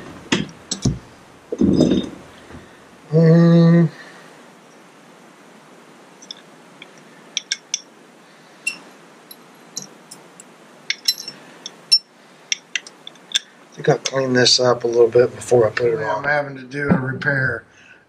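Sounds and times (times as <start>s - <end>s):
metallic clicks and clinks: 6.2s - 7.9s, 8.6s - 13.6s.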